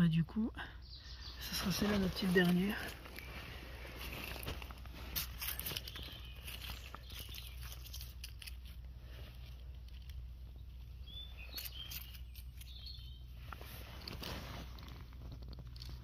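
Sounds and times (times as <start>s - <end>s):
bird chirps: 0.8s - 2.5s, 5.5s - 8.0s, 10.5s - 13.3s
leaves and twigs rustling: 1.1s - 16.0s.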